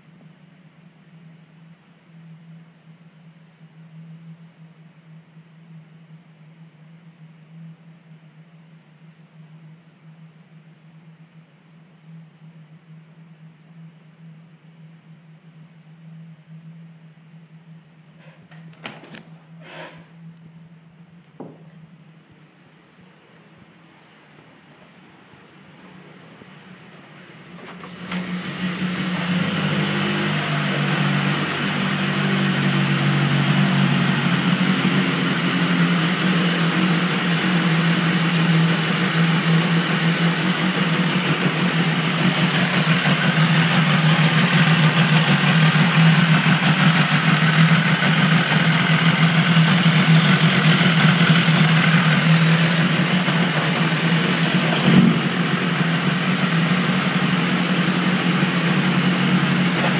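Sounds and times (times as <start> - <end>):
short knock: 21.4 - 21.8
motorcycle engine idling: 27.1 - 59.9.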